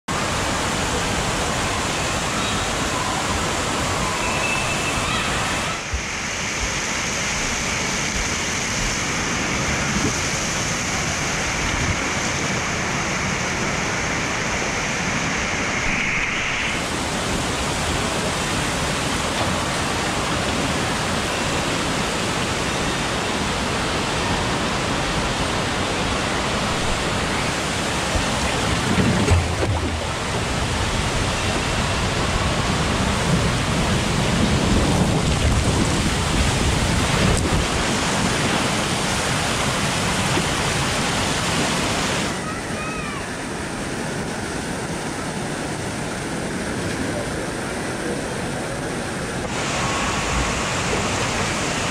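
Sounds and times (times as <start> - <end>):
water rushing down flume slide: 0.1 - 51.9.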